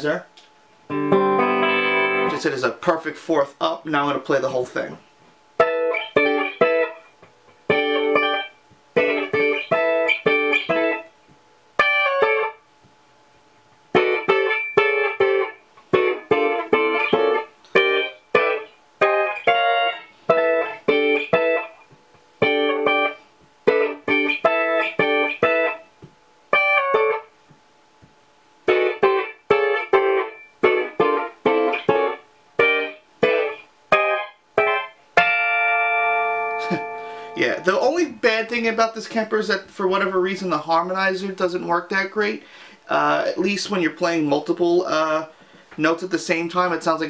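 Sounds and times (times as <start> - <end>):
electric guitar staccato chords: 0.9 - 2.6, 5.6 - 12.6, 13.9 - 38.5.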